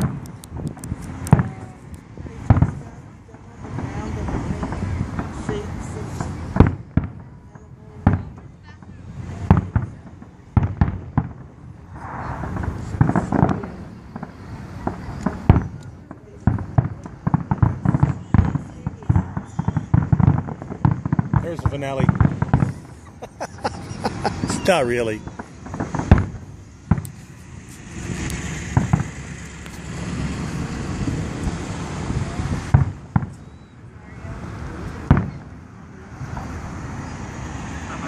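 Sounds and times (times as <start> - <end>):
firework shells bursting: 0.0 - 3.0, 8.0 - 30.1
low rumble: 0.0 - 37.8
firework hiss: 0.0 - 38.0.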